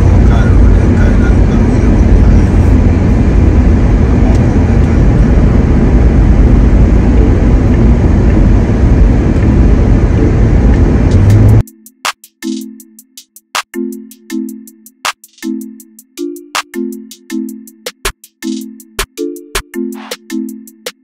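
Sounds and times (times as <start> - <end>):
car driving with road noise: 0.0 - 11.6.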